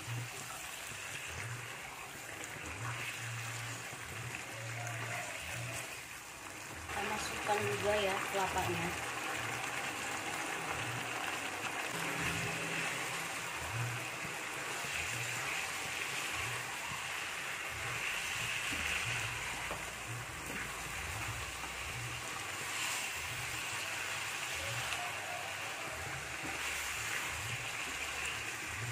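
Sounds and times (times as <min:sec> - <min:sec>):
chicken simmering in a pan: 0:00.0 - 0:28.9
spatula stirring: 0:11.9 - 0:28.9.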